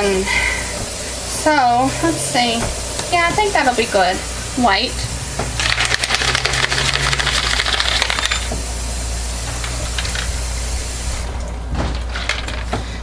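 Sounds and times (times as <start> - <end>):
batter pouring between plastic jugs: 5.5 - 8.5.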